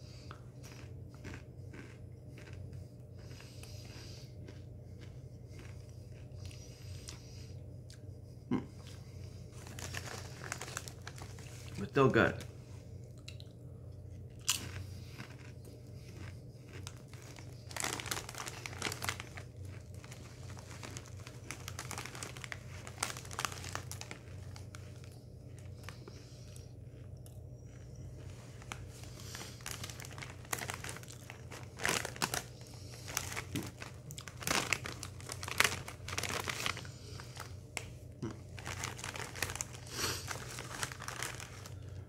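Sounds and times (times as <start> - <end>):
steady low hum: 0.0 - 42.0
chips crunching: 0.3 - 6.6, 14.3 - 42.0
foil chip bag crinkling: 9.5 - 12.5, 14.4 - 27.1, 27.7 - 42.0.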